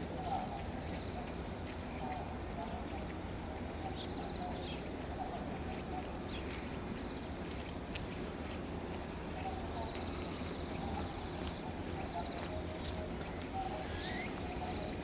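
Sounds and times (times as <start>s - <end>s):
high-pitched insect chorus: 0.0s - 15.0s
faint chirps: 9.3s - 15.0s.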